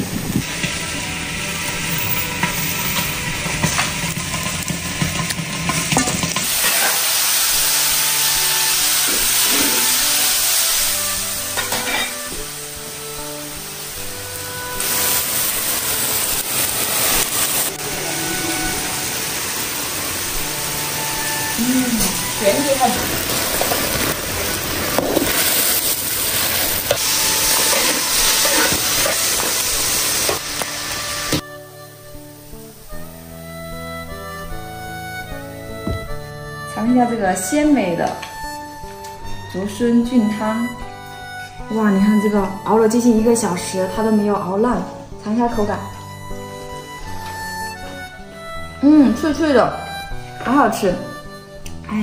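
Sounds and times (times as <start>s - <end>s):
soup boiling and bubbling: 0.0s - 11.5s, 12.4s - 33.3s
vegetables sizzling in a wok: 0.0s - 37.5s
broth simmering in a wok: 0.0s - 37.6s.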